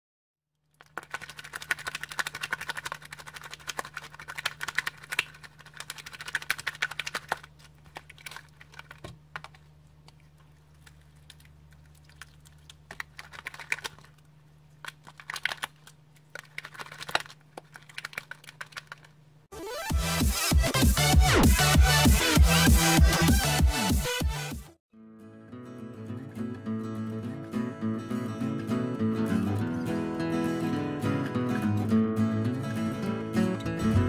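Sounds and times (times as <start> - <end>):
low steady hum: 2.0 - 19.5.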